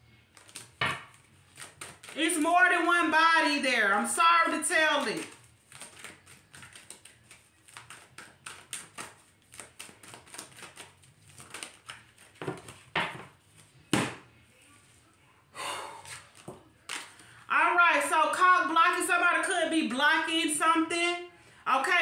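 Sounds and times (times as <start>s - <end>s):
playing cards shuffling: 0.3s - 2.4s, 5.0s - 13.9s, 16.1s - 17.3s
card rustle: 0.3s - 2.9s, 5.0s - 13.9s.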